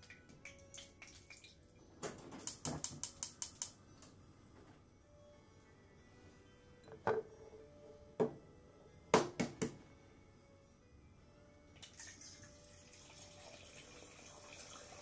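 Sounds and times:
kitchen clicks and knocks: 6.9s - 7.3s.

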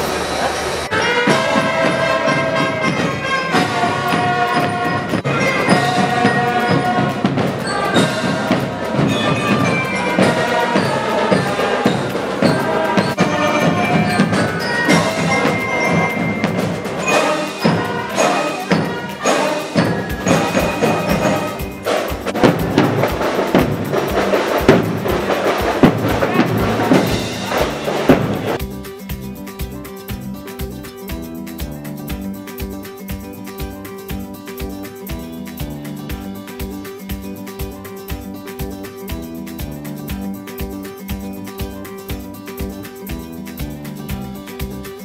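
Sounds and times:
snare drums: 0.0s - 45.0s
trumpets playing melody: 0.8s - 28.7s
bass drum beats: 0.8s - 45.0s.

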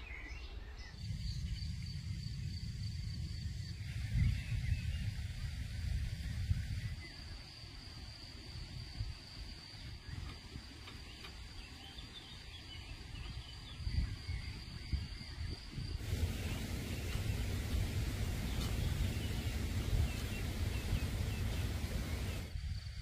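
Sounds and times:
faint bird chirps: 9.8s - 22.5s
low rumble: 16.0s - 22.5s.

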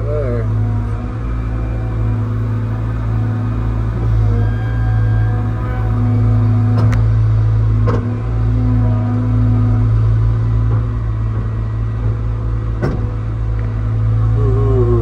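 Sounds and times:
diesel engine running: 0.0s - 15.0s
higher engine tone: 0.0s - 15.0s
sharp knocks: 10.7s - 13.2s.

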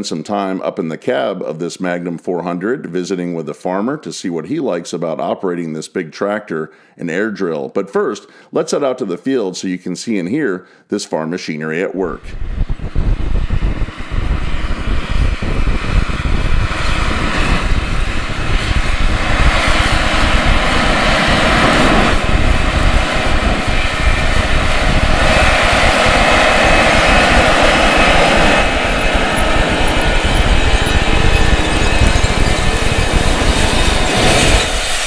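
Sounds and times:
tractor diesel engine under load: 13.0s - 35.0s.

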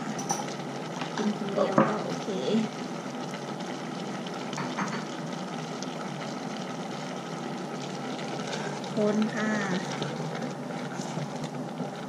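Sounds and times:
curry bubbling in a pot: 0.0s - 12.0s.

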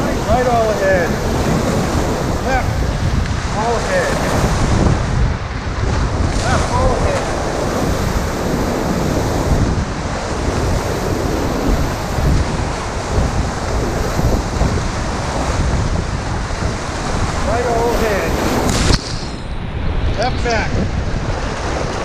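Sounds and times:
whitewater rapids rushing: 0.0s - 5.0s, 5.6s - 19.5s.

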